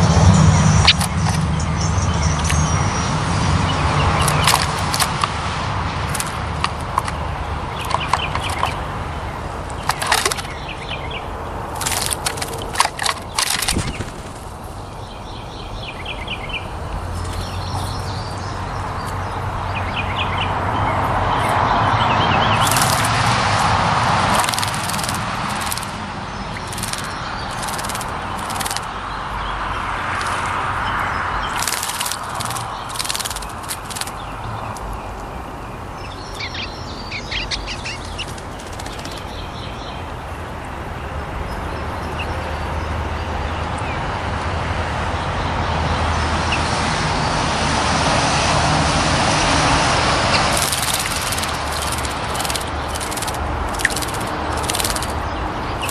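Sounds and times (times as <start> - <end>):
small birds chirping: 0.0 - 44.2, 49.3 - 55.9
road traffic rumble: 0.0 - 55.9
bird splashing in water: 4.1 - 10.8, 11.5 - 14.9, 20.9 - 34.9, 37.8 - 39.6, 49.2 - 55.9.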